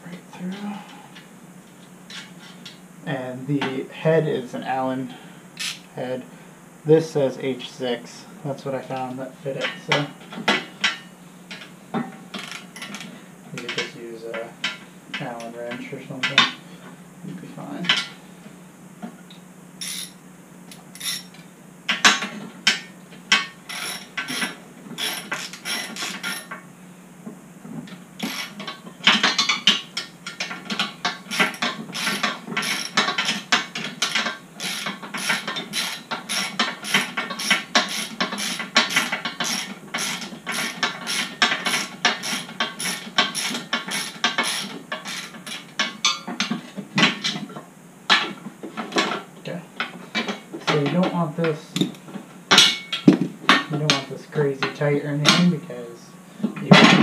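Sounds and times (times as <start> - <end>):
ratchet wrench clicking: 5.6 - 5.8, 19.8 - 20.2, 21.0 - 21.3, 23.7 - 26.5, 31.3 - 33.4, 34.0 - 45.6.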